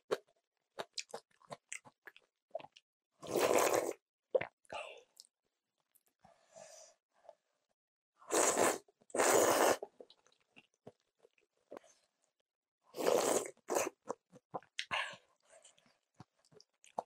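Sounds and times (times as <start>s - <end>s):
person slurping noodles: 3.2s - 4.0s, 8.3s - 9.9s, 13.0s - 14.0s
soft chewing: 14.1s - 17.0s.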